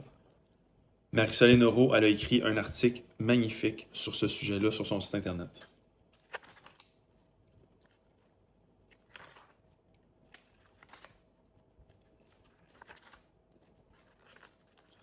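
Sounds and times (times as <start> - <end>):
paper pages rustling: 6.1 - 15.0.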